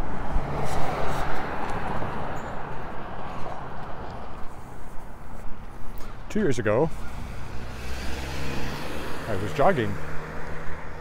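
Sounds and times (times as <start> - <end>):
car passing: 0.0 - 11.0.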